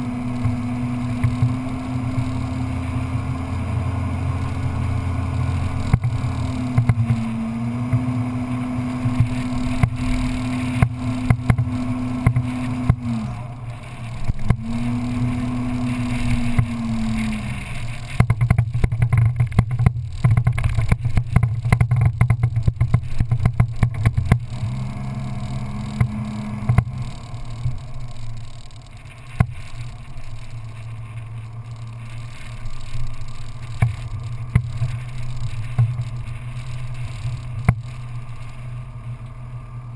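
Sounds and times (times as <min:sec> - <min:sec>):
off-road vehicle engine running: 0:00.0 - 0:39.9
rapid knocks and rattles: 0:18.1 - 0:24.6.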